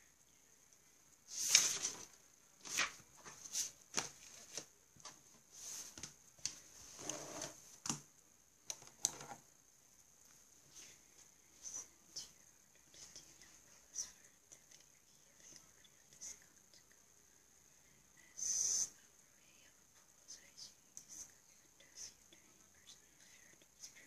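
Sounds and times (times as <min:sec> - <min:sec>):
paper rustling on a desk: 0:01.3 - 0:08.0.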